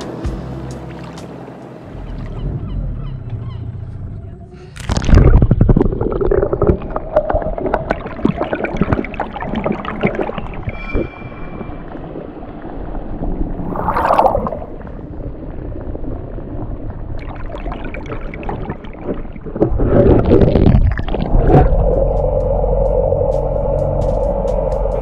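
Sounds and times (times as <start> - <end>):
background music with held notes: 0.0 - 2.6, 21.7 - 25.0
underwater gurgling and sloshing: 0.8 - 25.0
water splash: 4.8 - 22.1.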